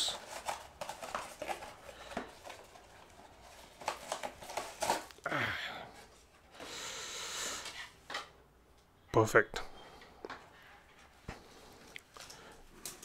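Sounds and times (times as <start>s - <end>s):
cardboard packaging rustling: 0.0s - 5.2s.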